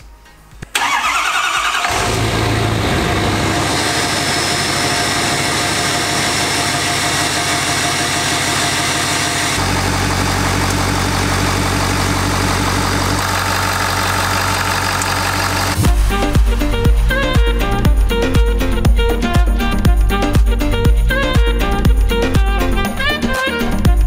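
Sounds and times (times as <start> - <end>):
diesel engine idling: 0.8 - 17.9.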